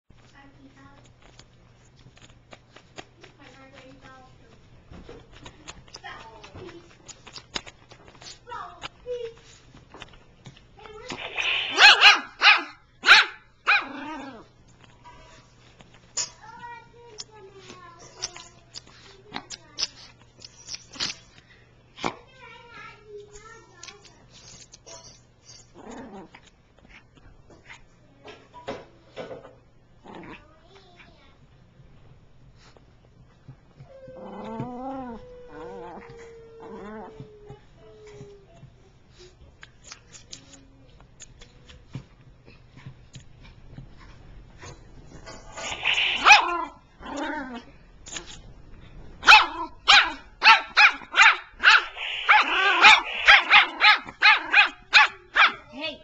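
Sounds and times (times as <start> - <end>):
dog barking short barks: 11.5 - 13.8
dog growling: 13.8 - 14.5, 25.8 - 26.4, 30.0 - 30.5, 34.1 - 37.3, 45.2 - 47.8
small dog vocalizing: 45.3 - 47.7, 51.6 - 54.6.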